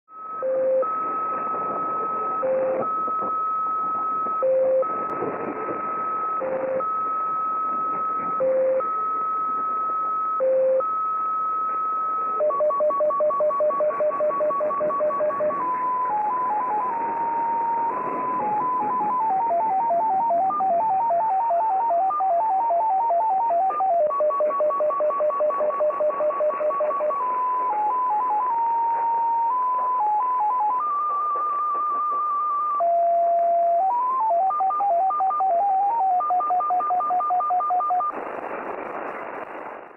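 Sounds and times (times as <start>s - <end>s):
rapid tones stepping between pitches: 12.4s - 27.2s.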